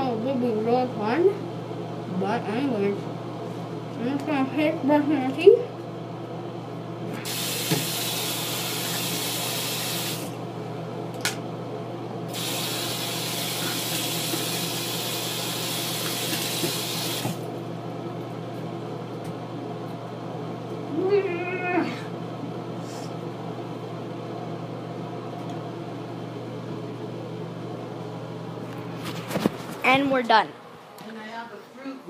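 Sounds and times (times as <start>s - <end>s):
exhaust fan hum: 0.0s - 32.0s
tap running into sink: 7.6s - 8.0s, 16.0s - 17.4s.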